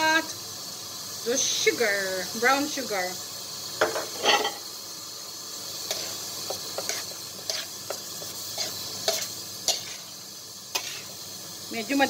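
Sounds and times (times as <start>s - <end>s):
steady hiss of frying: 0.0s - 12.0s
metal spatula scraping wok: 3.8s - 4.7s, 5.8s - 11.2s.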